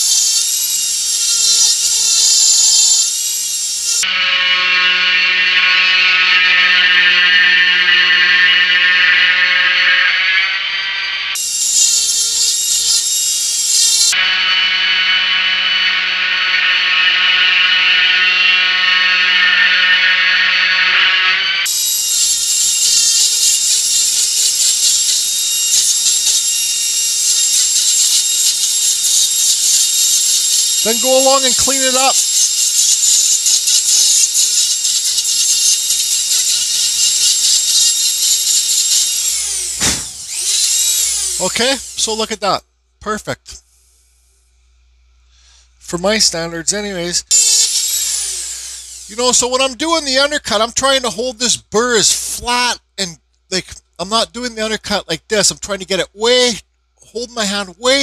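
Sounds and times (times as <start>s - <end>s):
rotary tool grinding wood: 0.0s - 42.4s, 47.3s - 49.5s
wood being ground: 0.0s - 42.5s, 47.3s - 49.7s.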